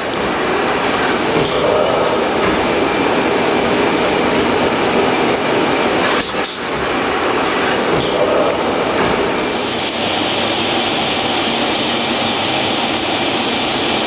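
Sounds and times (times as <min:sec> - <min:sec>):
machine clatter and rumble: 0:00.0 - 0:14.0.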